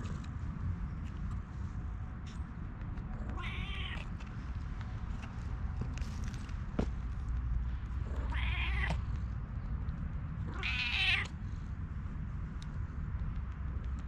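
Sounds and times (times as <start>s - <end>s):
cat meowing: 3.3s - 4.1s, 8.2s - 9.0s, 10.5s - 11.3s.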